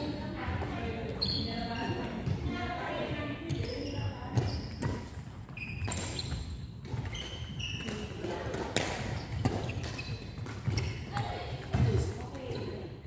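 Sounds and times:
shoes squeaking on floor: 1.1s - 8.2s, 9.1s - 12.8s
racket hitting shuttlecock: 5.8s - 12.6s.

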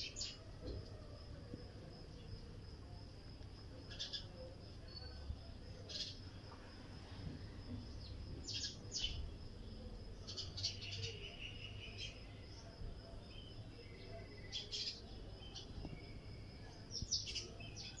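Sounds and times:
sparrows chirping: 0.0s - 0.4s, 3.7s - 6.4s, 7.8s - 18.0s.

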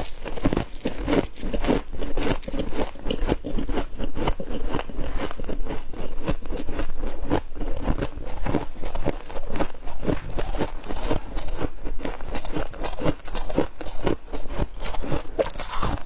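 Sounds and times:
frost crunching: 14.8s - 16.0s.

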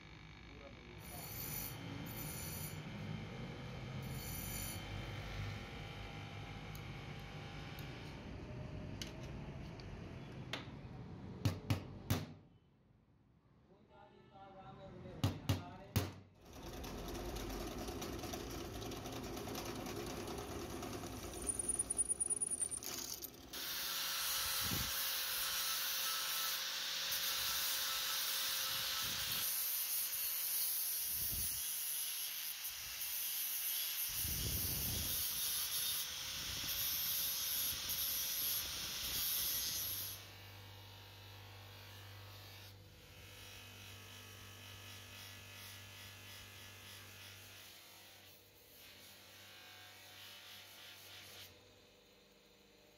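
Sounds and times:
bench buffer motor humming: 16.5s - 23.7s
drill press drilling brass: 16.5s - 24.0s
angle grinder grinding metal: 18.7s - 30.7s.

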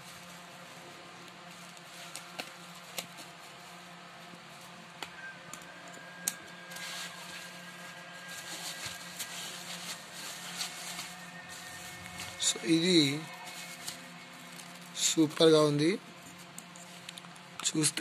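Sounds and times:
bubble wrap crinkling: 0.0s - 18.0s
scissors snipping plastic: 1.3s - 3.2s.

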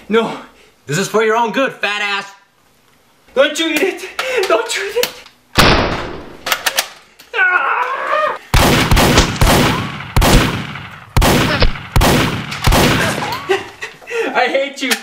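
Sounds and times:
toy blaster shots: 11.2s - 13.2s.

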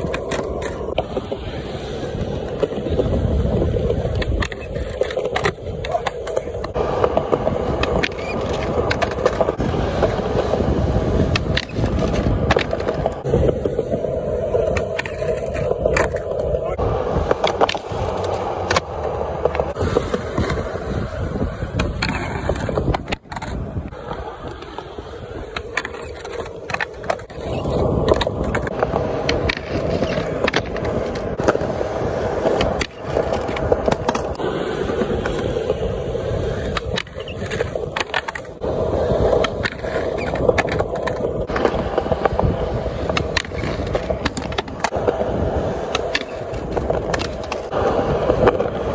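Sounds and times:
skateboard deck scraping on ledge: 0.0s - 48.9s
skateboard slapping down: 0.0s - 48.9s
skateboard tail clacks: 0.0s - 48.9s
skateboard wheels rolling on concrete: 0.0s - 48.9s.

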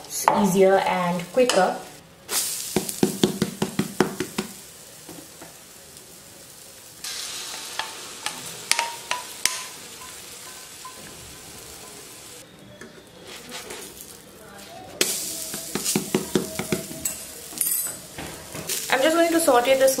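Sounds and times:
batter sizzling: 1.3s - 20.0s
spatula scraping hot plate: 13.1s - 15.1s.

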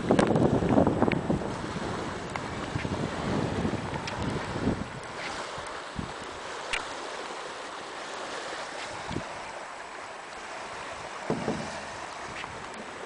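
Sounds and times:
wind on microphone: 0.0s - 7.0s, 8.5s - 9.6s, 10.4s - 13.0s
brief knocks: 11.3s - 11.9s.

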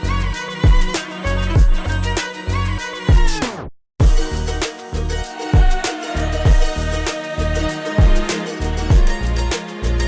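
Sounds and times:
music with deep steady beat: 0.0s - 2.3s, 4.0s - 10.0s.

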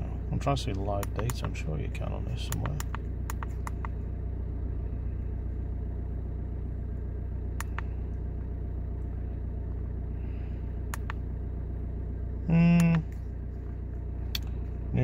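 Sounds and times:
diesel engine idling: 0.0s - 15.0s
scanner button clicks: 10.9s - 11.2s, 12.7s - 13.1s.

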